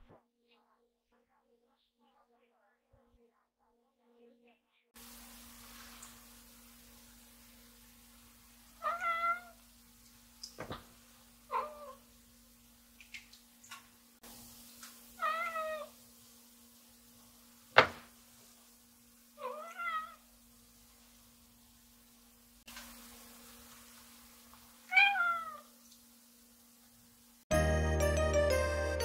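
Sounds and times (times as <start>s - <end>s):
faint steady hum: 4.7s - 27.4s
cat meowing: 8.8s - 9.6s, 11.5s - 12.0s, 15.2s - 16.0s, 19.4s - 20.2s, 24.9s - 25.7s
sharp knocks: 17.8s - 18.1s.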